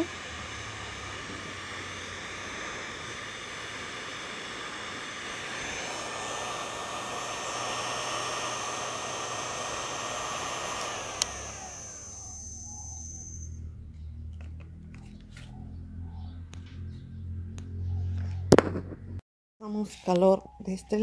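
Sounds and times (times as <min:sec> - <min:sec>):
heat gun blowing air: 0:00.0 - 0:13.5
heat gun switch click: 0:10.6 - 0:11.6.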